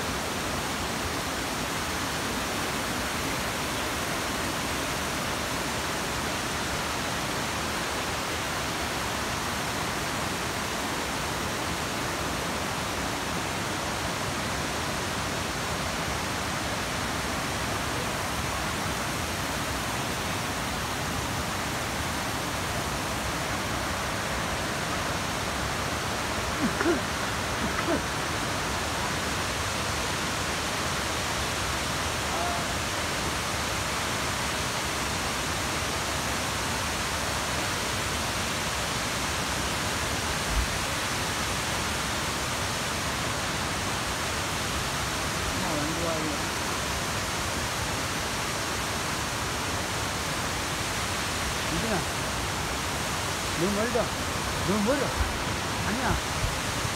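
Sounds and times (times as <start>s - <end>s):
cascading water roar: 0.0s - 56.9s
person's voice: 26.6s - 28.0s, 32.3s - 32.8s, 45.5s - 46.5s, 51.7s - 52.1s, 53.5s - 56.2s.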